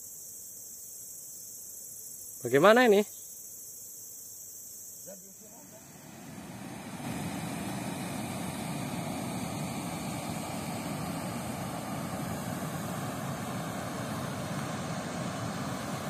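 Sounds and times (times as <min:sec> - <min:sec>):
water roaring over a weir: 0:06.0 - 0:16.0.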